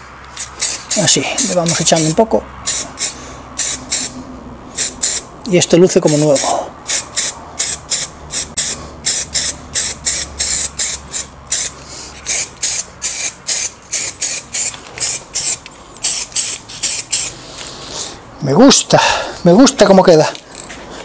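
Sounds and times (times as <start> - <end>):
spray paint can hissing: 0.3 - 5.3, 6.0 - 17.4.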